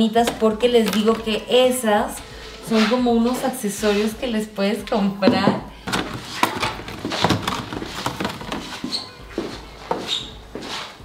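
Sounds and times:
plastic packaging crackling: 0.2s - 1.6s, 5.8s - 9.2s.

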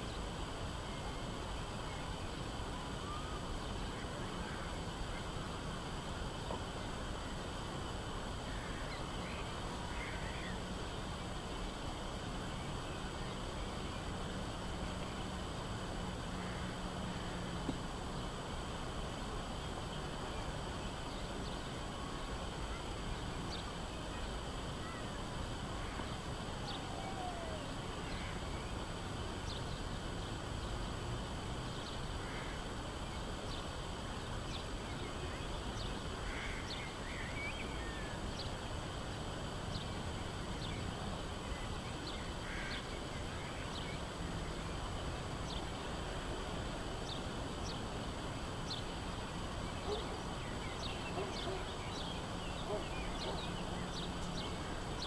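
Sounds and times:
lower bird calls: 25.8s - 28.7s.

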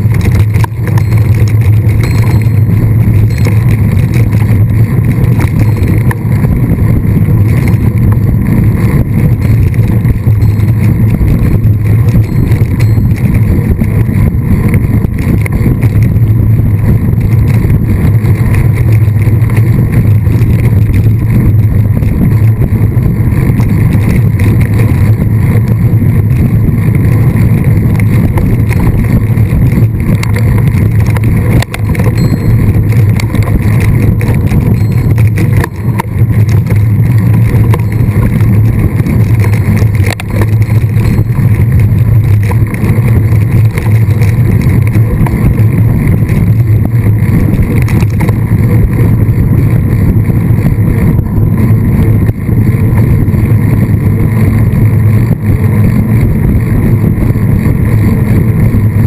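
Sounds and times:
wind noise on microphone: 0.0s - 59.0s.

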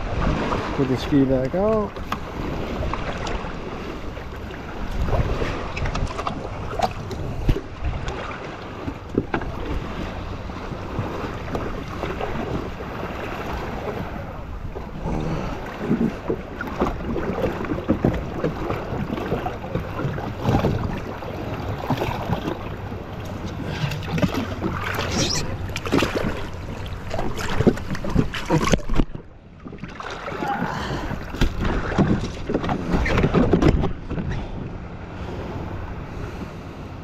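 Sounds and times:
water splashing against hull: 0.0s - 37.0s.

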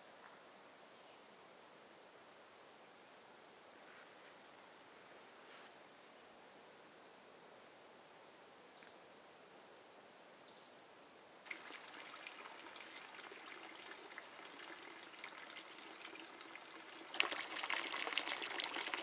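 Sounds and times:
water trickling and splashing: 11.4s - 19.0s.

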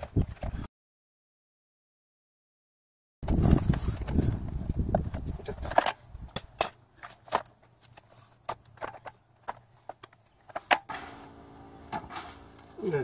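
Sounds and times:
rough handling noise: 3.2s - 13.0s.

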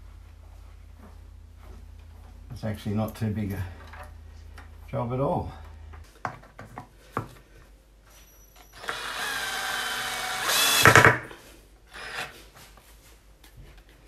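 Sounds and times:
cordless drill driving screw: 8.7s - 11.1s, 11.9s - 12.3s.

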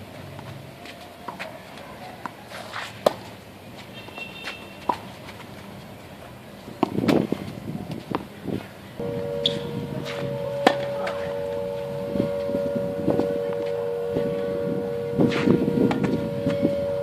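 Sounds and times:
scuffing rustle: 0.3s - 8.8s
tennis ball being struck: 9.4s - 11.4s.

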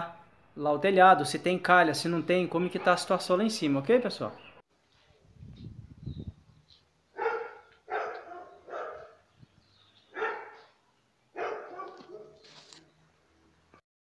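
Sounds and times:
dog barking: 7.1s - 9.2s, 10.1s - 12.4s.

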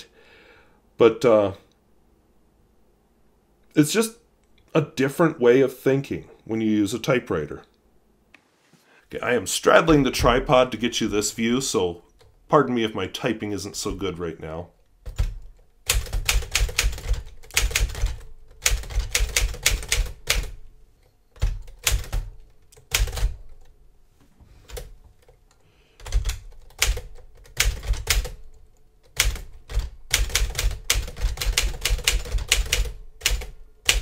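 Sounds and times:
manual typewriter typing: 15.0s - 20.6s, 21.3s - 23.7s, 26.0s - 34.0s.

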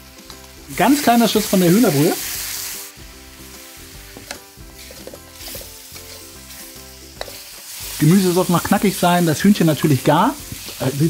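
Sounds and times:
stock sizzling in a hot wok: 0.0s - 11.0s
metal spatulas scraping a wok: 4.2s - 7.7s.

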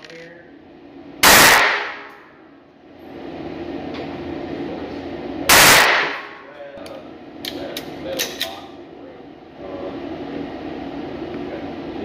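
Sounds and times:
handgun gunshot with echo: 1.2s - 2.2s, 5.5s - 6.4s.

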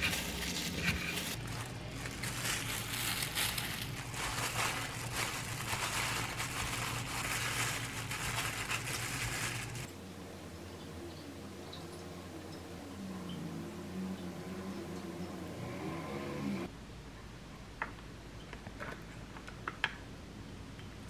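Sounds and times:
plastic gloves crinkling: 0.0s - 10.0s.

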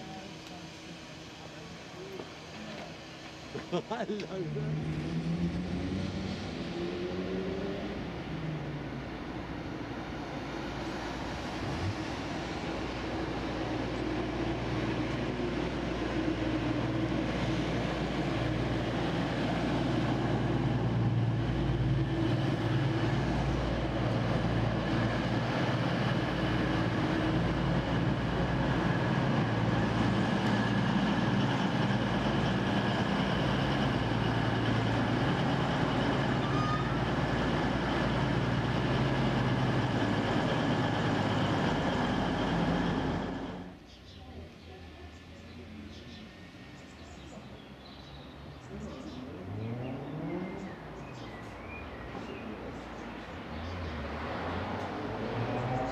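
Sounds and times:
diesel train engine droning: 0.0s - 43.9s.

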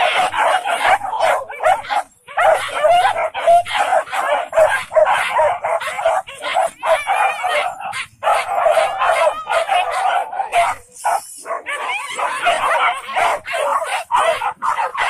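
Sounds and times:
dogs barking and yelping: 0.0s - 15.0s.

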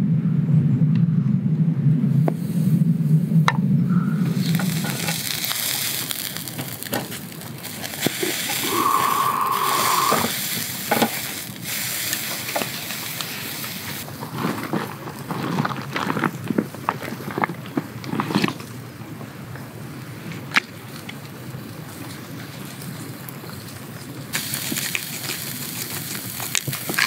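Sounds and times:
meat sizzling on a grill: 4.2s - 14.3s, 21.5s - 27.0s.

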